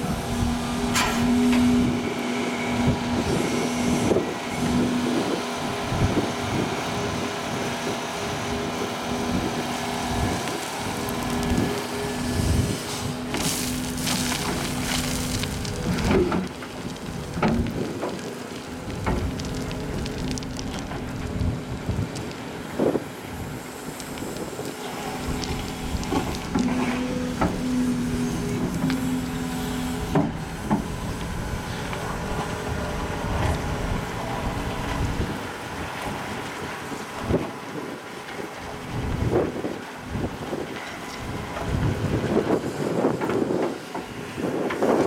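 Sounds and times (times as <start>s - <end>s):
excavator engine and hydraulics hum: 0.0s - 45.0s
bucket sifting through sand: 10.3s - 16.6s.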